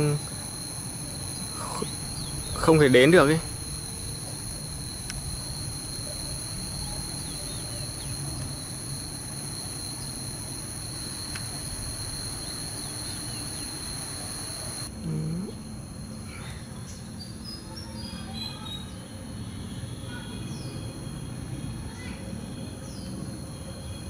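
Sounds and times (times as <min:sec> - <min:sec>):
low outdoor rumble: 0:00.0 - 0:16.3
high-pitched insect chorus: 0:00.0 - 0:24.0.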